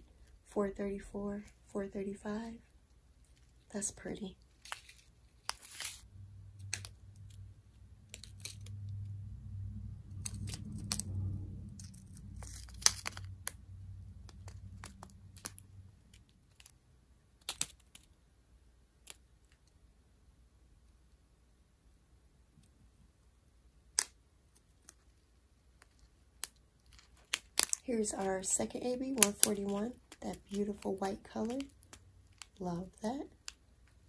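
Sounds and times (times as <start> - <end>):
low rumble: 6.0 - 16.1.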